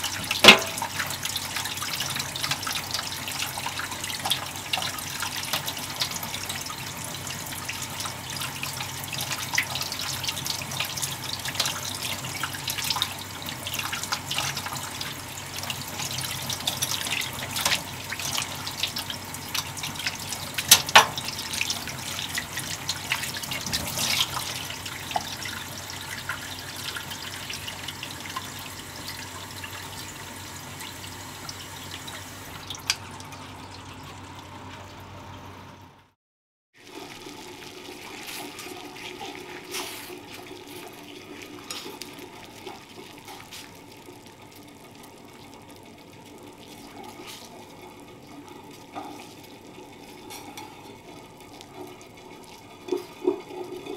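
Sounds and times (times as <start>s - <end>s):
tap water splashing: 0.0s - 2.9s, 20.6s - 21.9s.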